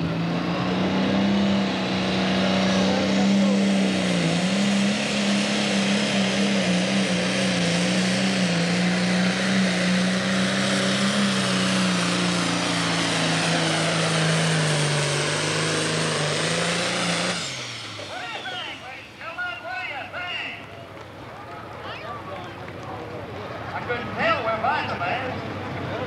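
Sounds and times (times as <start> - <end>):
tractor diesel engine at full throttle: 0.0 - 26.0.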